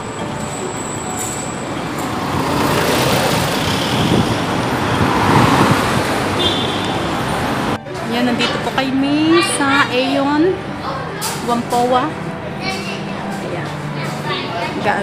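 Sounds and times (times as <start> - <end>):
city street traffic: 0.0 - 15.0
vehicle passing close: 1.0 - 7.8.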